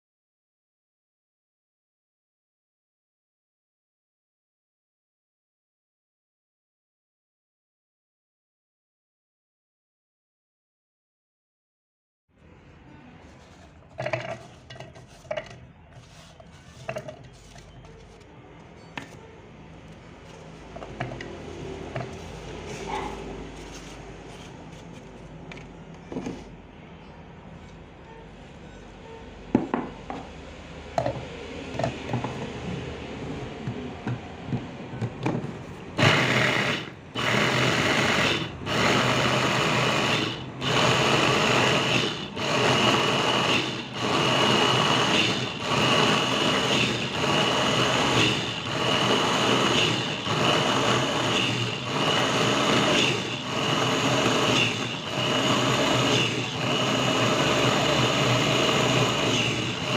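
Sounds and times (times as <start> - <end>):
food chopper motor grinding: 20.3 - 24.5, 36.0 - 59.9.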